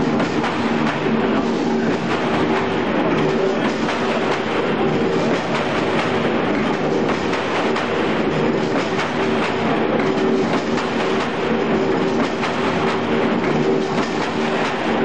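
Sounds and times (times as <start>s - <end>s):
machine clattering: 0.0s - 15.0s
steady machine hum: 0.0s - 15.0s.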